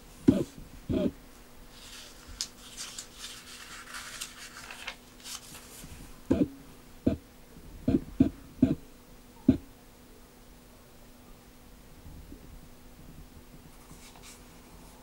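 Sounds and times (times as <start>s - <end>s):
faint steady hum: 0.0s - 15.0s
paper page rustling: 1.7s - 6.1s, 13.8s - 14.6s.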